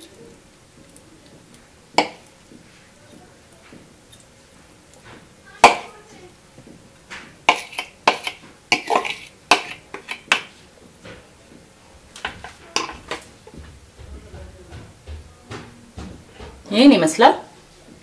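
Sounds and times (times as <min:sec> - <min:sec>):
spoon clinking on ceramic bowls: 0:02.0 - 0:02.3, 0:07.5 - 0:10.6, 0:12.2 - 0:13.2.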